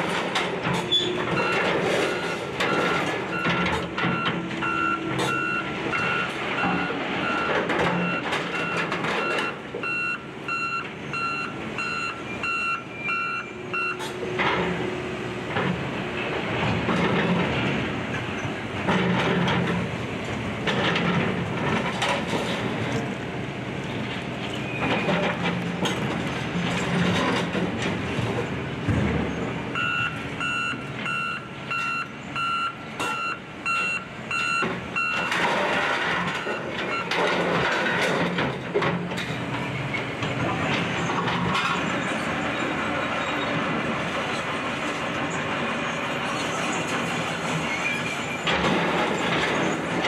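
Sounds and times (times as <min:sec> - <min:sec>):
reversing alarm beeping: 0:00.9 - 0:14.1, 0:29.8 - 0:35.4, 0:36.4 - 0:37.2.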